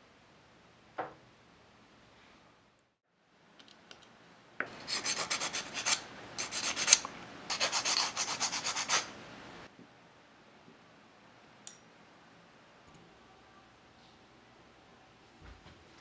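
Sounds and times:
wood rasping on a file: 4.9 - 9.1.

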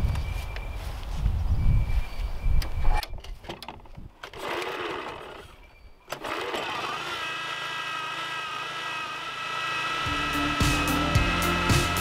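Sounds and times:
recoil starter pulled: 3.0 - 5.5, 6.1 - 10.0
small engine running: 4.3 - 12.0.

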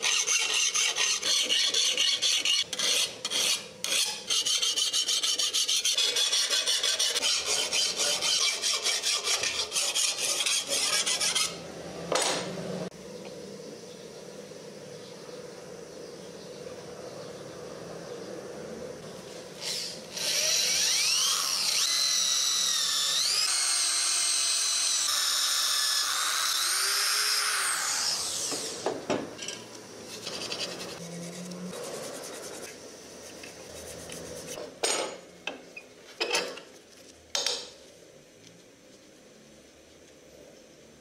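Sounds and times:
scraping on steel: 0.0 - 11.6, 29.4 - 32.7
power grinder whining on metal: 19.6 - 29.0.

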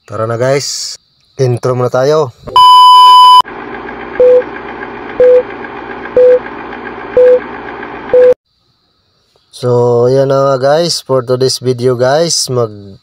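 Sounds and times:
short beeps: 2.5 - 3.4, 5.2 - 5.4, 6.2 - 6.4, 7.2 - 7.4, 8.2 - 8.4.

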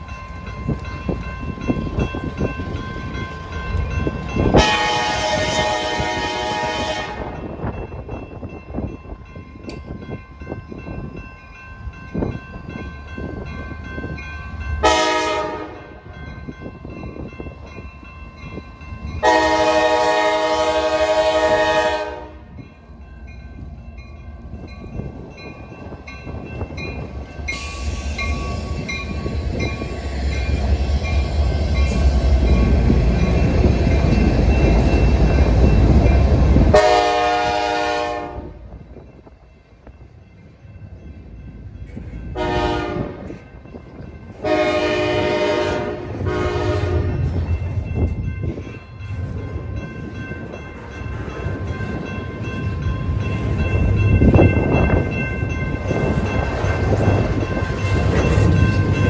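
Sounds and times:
crossing bell ringing: 0.0 - 59.0
locomotive rumble: 0.0 - 59.0
wind buffeting microphone: 0.0 - 59.0
locomotive horn blasts: 4.5 - 7.4, 14.8 - 15.9, 19.2 - 22.5, 36.7 - 38.6, 42.4 - 43.4, 44.4 - 47.3.

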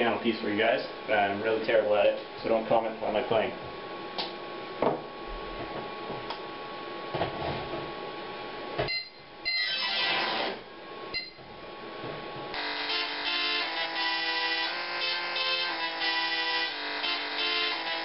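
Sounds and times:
steady hum: 0.0 - 18.0
tesla coil buzzing musical notes: 12.5 - 18.0.

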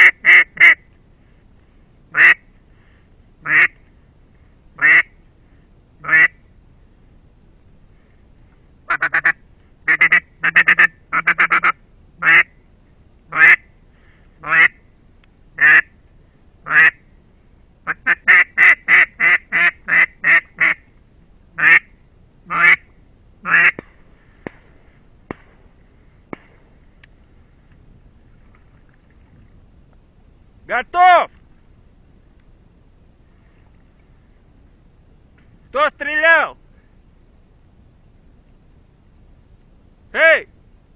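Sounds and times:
duck call quacking: 0.0 - 0.8, 2.1 - 2.4, 3.4 - 3.8, 4.8 - 5.1, 6.0 - 6.4, 8.9 - 12.5, 13.3 - 13.7, 14.4 - 14.8, 15.6 - 15.9, 16.7 - 17.0, 17.9 - 20.8, 21.6 - 21.9, 22.5 - 23.8.

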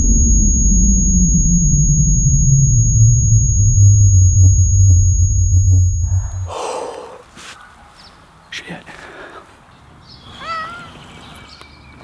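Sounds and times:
high-pitched ringing tone: 0.0 - 6.5
low drone sinking in pitch: 0.0 - 6.5.

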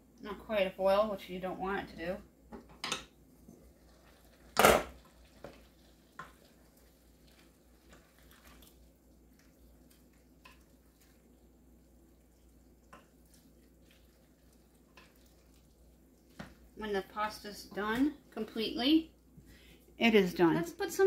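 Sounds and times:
wooden spoon stirring pasta: 3.2 - 20.0.

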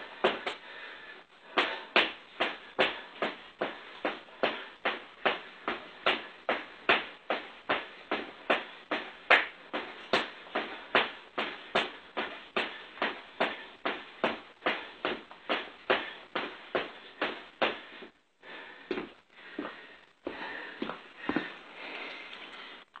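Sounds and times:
jumping jack landings: 1.5 - 18.1.

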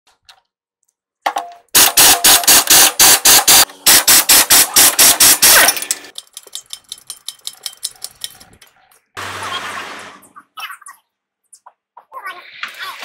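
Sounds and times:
impact wrench hammering on bolt: 1.3 - 6.2.

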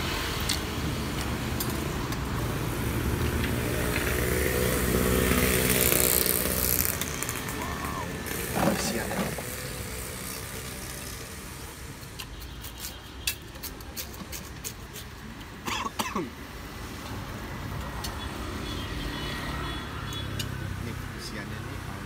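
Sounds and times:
motorbikes passing: 0.0 - 12.1, 16.6 - 22.0
street traffic hum: 0.0 - 22.0.

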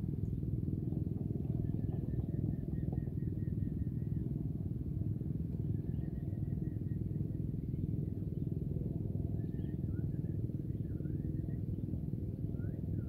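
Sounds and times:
low engine-like rumble: 0.0 - 13.0.

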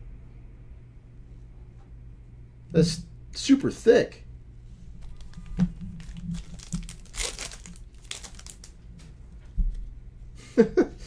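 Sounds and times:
foil wrapper crinkling and tearing: 5.0 - 8.9.

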